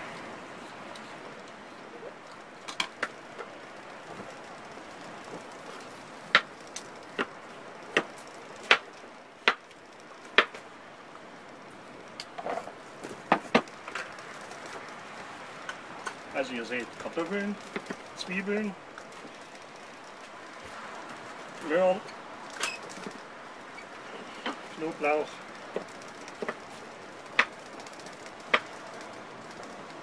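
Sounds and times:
steady hiss: 0:00.0 - 0:30.0.

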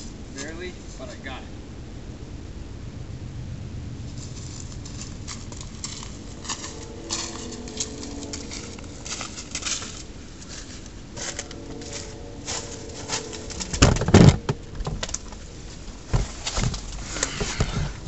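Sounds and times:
footsteps in dry leaves and snow: 0:04.1 - 0:17.3.

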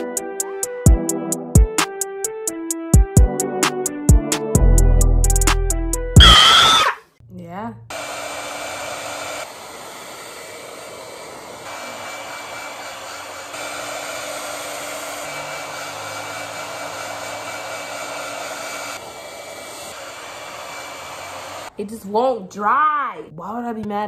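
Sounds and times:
hair dryer blowing: 0:06.2 - 0:07.0, 0:07.9 - 0:21.8.

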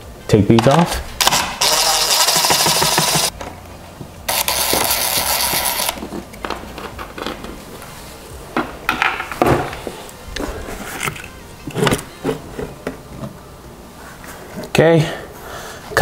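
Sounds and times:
cordless power driver running: 0:01.2 - 0:03.3, 0:04.3 - 0:06.0
tool and cover clicks and knocks: 0:02.4 - 0:03.5, 0:08.6 - 0:09.8.

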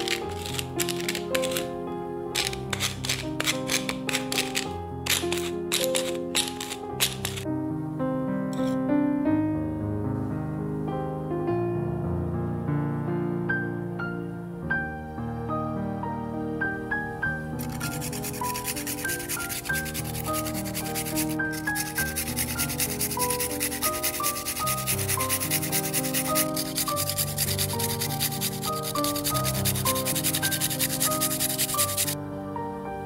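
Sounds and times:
garlic grated on metal grater: 0:00.0 - 0:01.7, 0:02.4 - 0:07.4, 0:17.6 - 0:32.2
soft piano music: 0:00.0 - 0:33.0.

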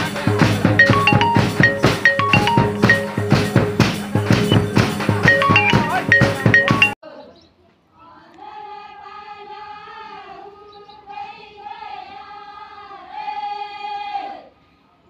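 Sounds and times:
women singing in unison: 0:08.0 - 0:14.5.

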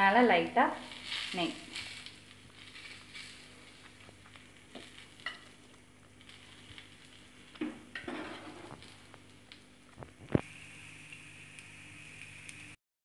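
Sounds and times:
flatbread sizzling: 0:00.0 - 0:12.8.

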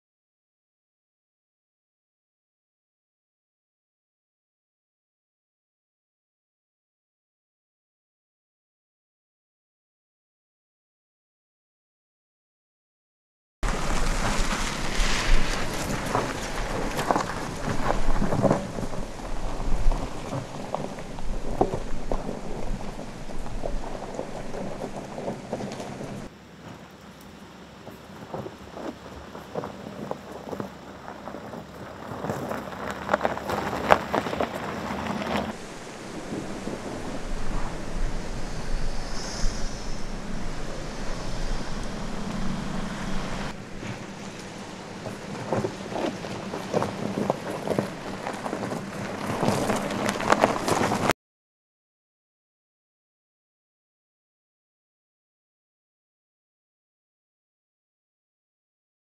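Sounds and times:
wind noise on microphone: 0:13.6 - 0:26.3, 0:28.0 - 0:51.1
tyres crunching over gravel: 0:13.6 - 0:38.0, 0:40.2 - 0:51.1
low engine hum: 0:13.6 - 0:51.1
low vehicle rumble: 0:13.6 - 0:51.1.

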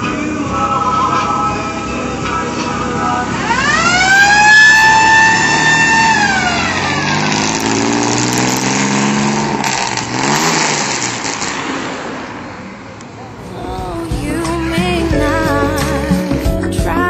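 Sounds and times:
pickup engine accelerating: 0:00.0 - 0:16.8
high siren-like tone: 0:03.5 - 0:07.9.

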